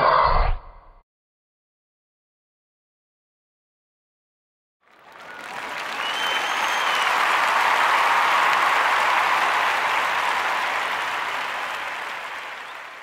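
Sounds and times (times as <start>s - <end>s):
crowd applause: 4.8s - 13.0s.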